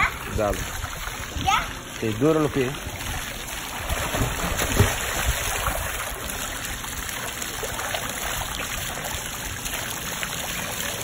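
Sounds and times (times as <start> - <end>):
child swimming in pool water: 0.0 - 11.0
loud water splash: 2.9 - 11.0.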